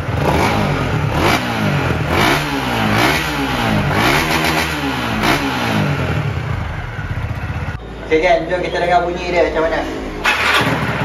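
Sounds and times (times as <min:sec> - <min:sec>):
motorcycle engine revving: 0:00.0 - 0:07.8, 0:10.0 - 0:11.0.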